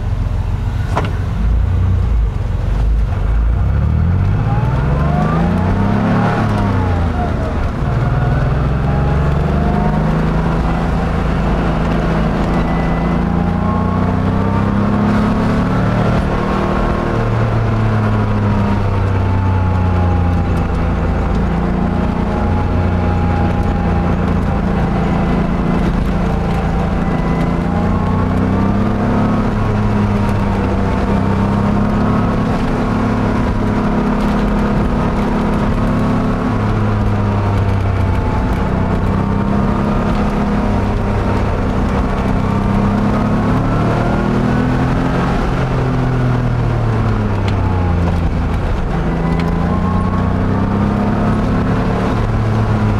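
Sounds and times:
car engine revving: 0:00.0 - 0:52.9.

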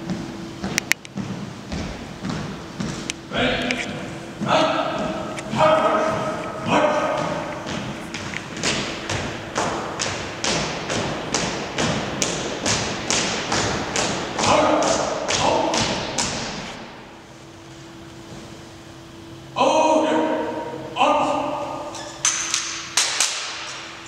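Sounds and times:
marching footsteps on hard floor: 0:00.0 - 0:16.8.

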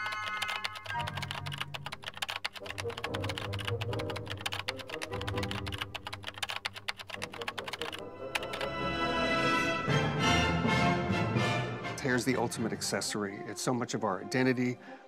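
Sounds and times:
fast keyboard typing: 0:00.0 - 0:08.8
background music: 0:00.0 - 0:15.0.

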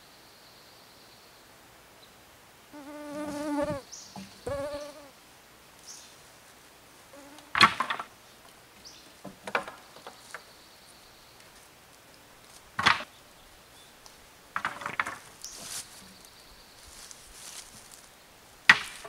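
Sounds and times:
fly buzzing: 0:02.7 - 0:05.2, 0:07.1 - 0:07.8
wooden poles clattering: 0:14.6 - 0:16.1.

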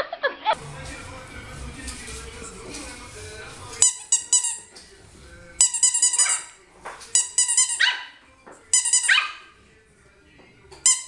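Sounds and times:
puppy yapping: 0:07.5 - 0:08.2, 0:08.8 - 0:09.5.

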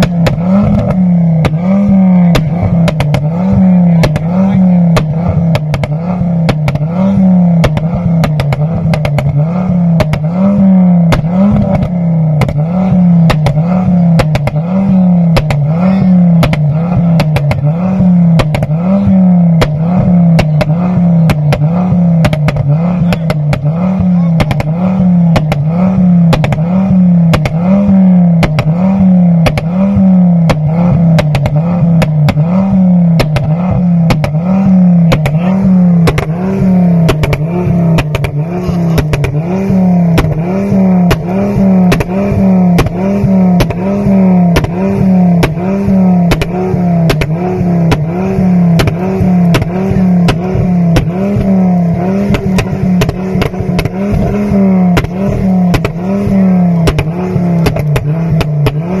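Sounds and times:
car engine revving high: 0:00.0 - 0:59.0
exhaust pops and bangs: 0:00.0 - 0:59.0.

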